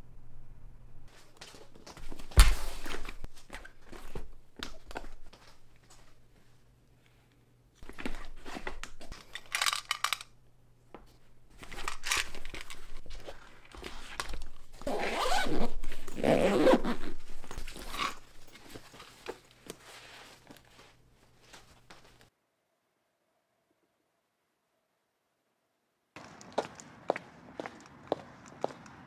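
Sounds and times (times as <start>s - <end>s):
rustling and scraping: 11.0s - 22.3s.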